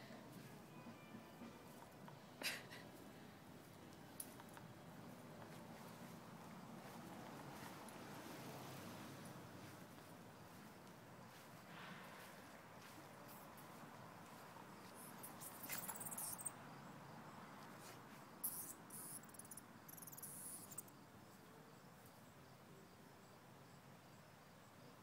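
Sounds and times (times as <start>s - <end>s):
insect chirping: 12.4s - 25.0s.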